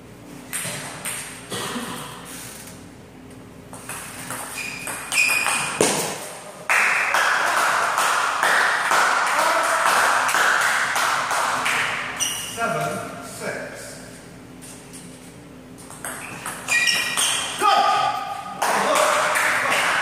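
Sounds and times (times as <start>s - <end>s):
table tennis ball bouncing: 3.7s - 6.3s, 15.9s - 17.5s.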